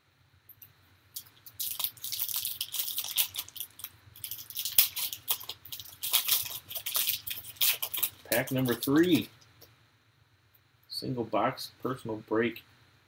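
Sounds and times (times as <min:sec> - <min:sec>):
foil wrapper crinkling and tearing: 0:01.2 - 0:09.3
foil wrapper snap: 0:01.2 - 0:09.3.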